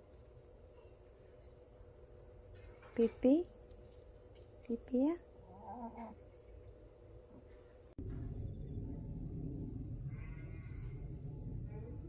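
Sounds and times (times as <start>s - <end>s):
insects trilling: 0.0s - 12.0s
low rushing noise: 8.0s - 12.0s.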